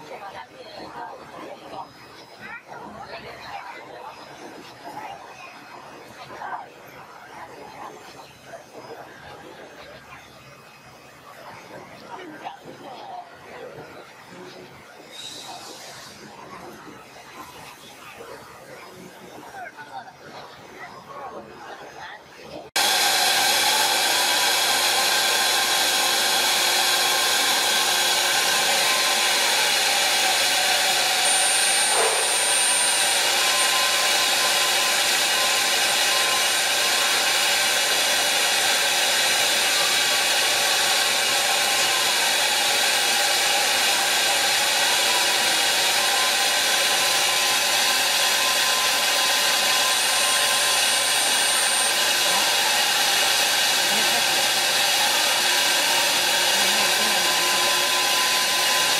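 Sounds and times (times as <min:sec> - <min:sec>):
hiss of cutting: 0:15.1 - 0:16.2, 0:22.8 - 0:58.9
router spindles whining: 0:22.8 - 0:58.9.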